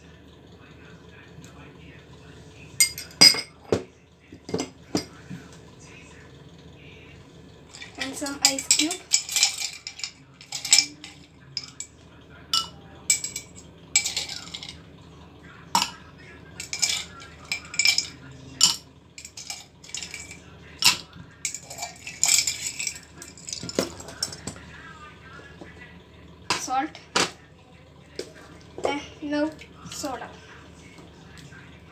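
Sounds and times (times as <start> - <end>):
ice cubes clinking against glass: 7.8 - 11.9, 12.6 - 14.8, 16.6 - 24.5.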